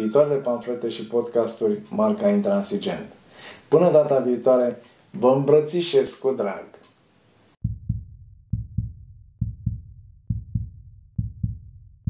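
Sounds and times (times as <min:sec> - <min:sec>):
heartbeat thumps: 0:07.6 - 0:12.0.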